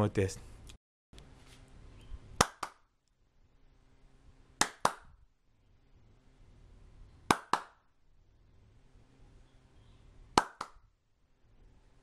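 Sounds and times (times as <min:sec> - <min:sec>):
hand claps in pairs: 0:02.4 - 0:02.8, 0:04.6 - 0:05.1, 0:07.3 - 0:07.8, 0:10.4 - 0:10.8.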